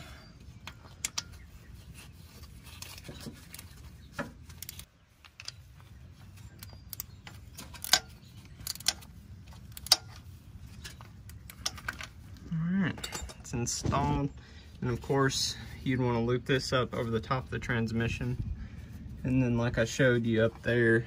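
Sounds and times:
metal tools clinking on engine: 2.7 - 12.2, 12.9 - 13.8.

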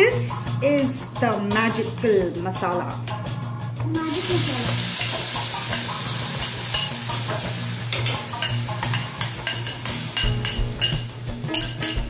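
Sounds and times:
paste sizzling in hot oil: 4.0 - 12.0.

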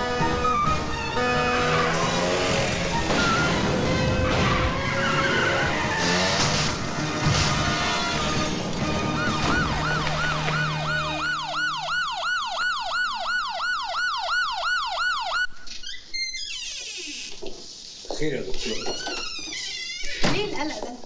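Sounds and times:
ambulance siren yelping: 0.0 - 6.4, 8.0 - 15.6.

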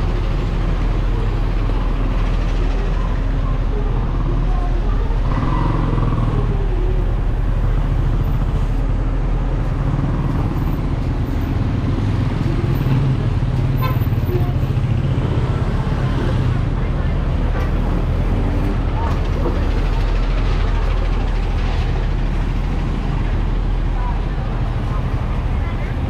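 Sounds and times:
bus diesel engine humming: 0.0 - 26.0
motor scooters passing: 4.2 - 7.9.

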